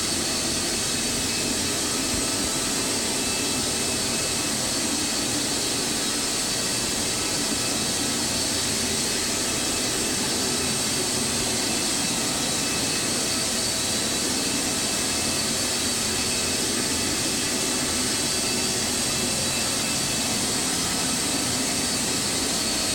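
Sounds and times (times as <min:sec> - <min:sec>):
carpet cleaning machine running: 0:00.0 - 0:22.9.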